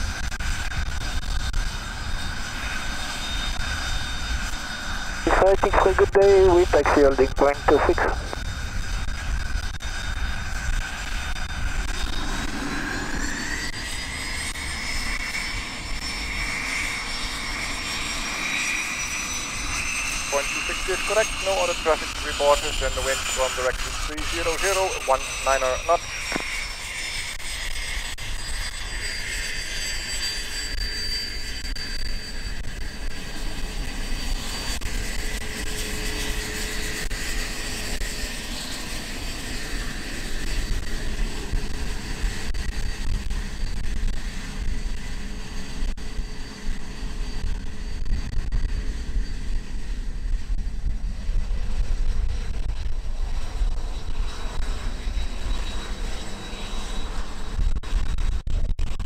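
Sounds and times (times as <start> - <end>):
jet turbine whine: 0.0 - 59.0.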